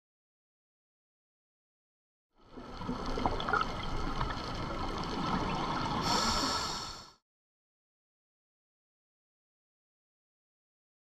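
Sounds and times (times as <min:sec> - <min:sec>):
muffled underwater wash: 0:02.4 - 0:07.2
diver bubbles crackling: 0:02.8 - 0:04.4.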